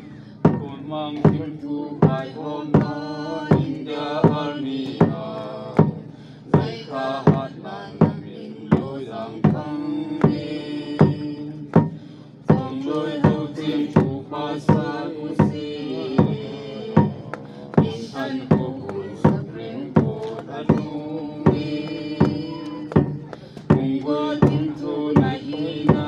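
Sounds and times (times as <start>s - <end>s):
slow drum beat: 0.4s - 26.0s.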